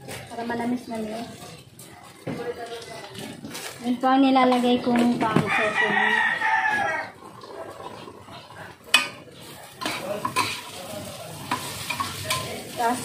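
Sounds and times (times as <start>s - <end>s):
rooster crowing: 5.4s - 7.2s
light sizzle: 7.4s - 13.0s
utensil scraping a pan: 8.3s - 13.0s
utensil clanking against pan: 8.9s - 12.7s.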